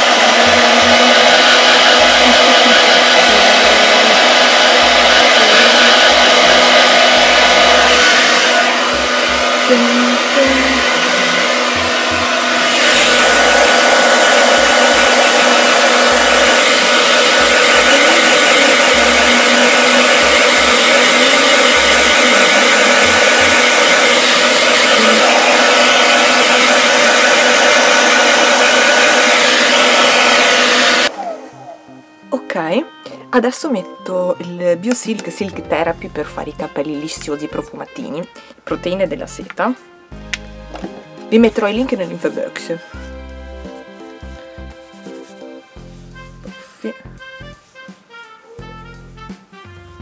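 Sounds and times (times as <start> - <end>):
hair dryer blowing: 0.0 - 32.3, 40.2 - 47.1.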